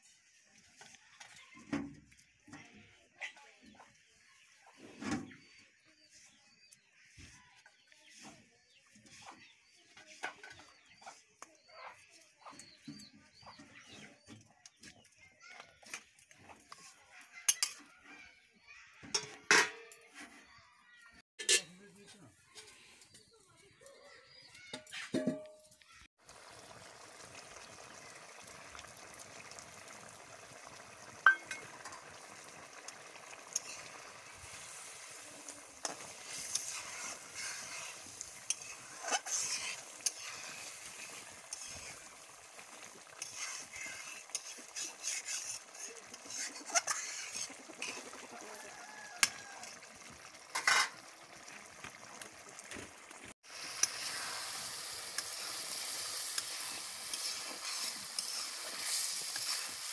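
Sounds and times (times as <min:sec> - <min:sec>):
food sizzling in a pan: 0:24.4 - 0:59.9
metal spatula scraping pan: 0:35.8 - 0:42.2, 0:43.1 - 0:48.1, 0:50.5 - 0:51.0, 0:56.3 - 0:59.9.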